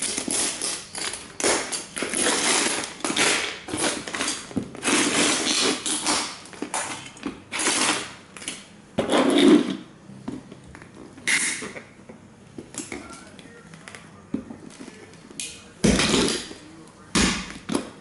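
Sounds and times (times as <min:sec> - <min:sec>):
plastic crunching under boots: 0:00.0 - 0:08.2.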